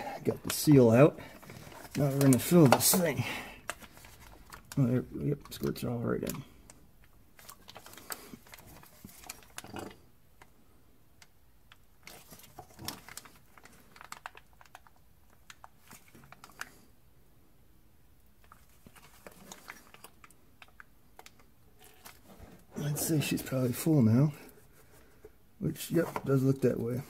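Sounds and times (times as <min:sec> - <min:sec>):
plastic pouch crinkling: 0:00.4 - 0:05.7, 0:07.4 - 0:10.0, 0:12.0 - 0:16.9, 0:18.4 - 0:24.5.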